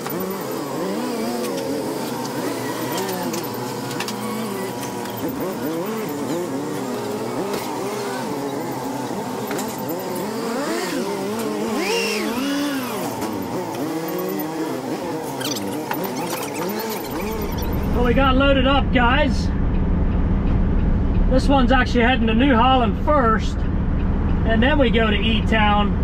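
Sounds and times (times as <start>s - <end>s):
engine revving: 0.0s - 26.0s
high whine: 16.1s - 26.0s.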